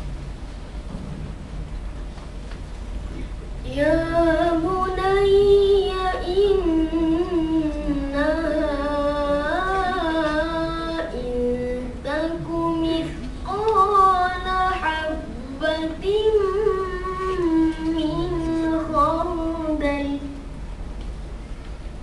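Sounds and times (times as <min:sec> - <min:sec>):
boy reciting melodically: 0:03.6 - 0:20.6.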